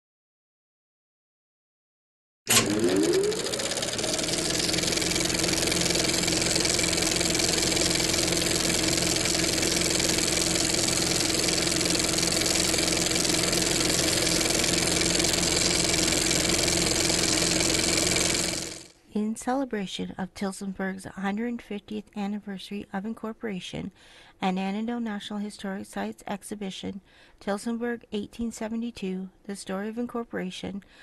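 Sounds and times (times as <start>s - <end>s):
film projector whirring: 2.5s - 19.0s.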